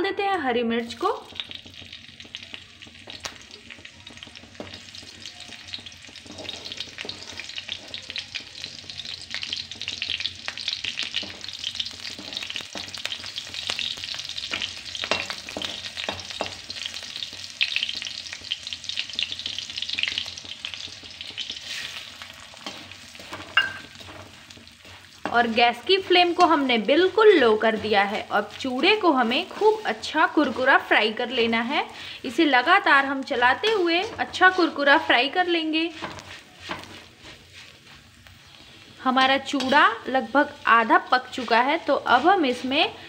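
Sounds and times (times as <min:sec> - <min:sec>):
chillies sizzling in hot oil: 0:00.0 - 0:43.0
metal spatula scraping pan: 0:06.1 - 0:08.0, 0:10.9 - 0:13.8, 0:21.4 - 0:31.5, 0:35.7 - 0:38.8, 0:39.4 - 0:43.0.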